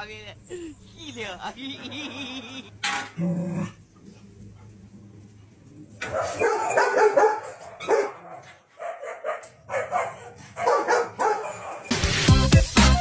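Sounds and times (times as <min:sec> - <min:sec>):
dog barking: 0:06.0 - 0:12.0.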